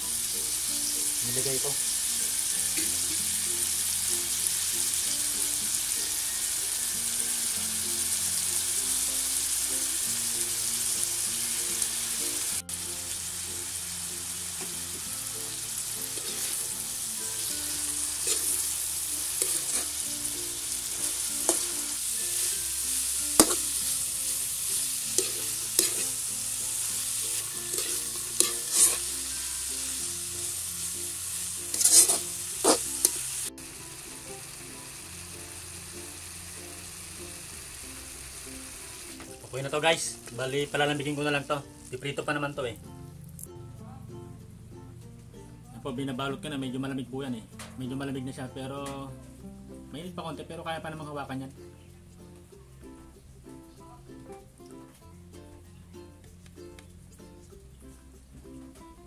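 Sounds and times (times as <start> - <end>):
vegetables sizzling in a wok: 0.0 - 42.6
spatula scraping and clacking on wok: 2.7 - 3.3, 15.8 - 33.5.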